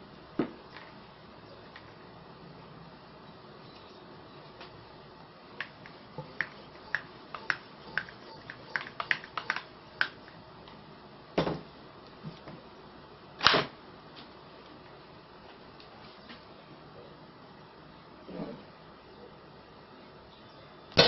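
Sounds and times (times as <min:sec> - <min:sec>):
plastic clicks and taps: 0:05.6 - 0:10.8.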